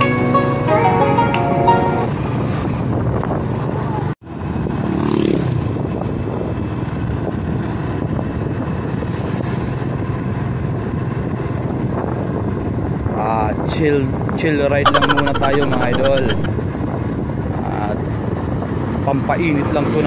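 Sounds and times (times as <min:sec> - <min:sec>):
background music: 0:00.0 - 0:02.1
wind and road noise: 0:01.4 - 0:14.8, 0:15.5 - 0:20.0.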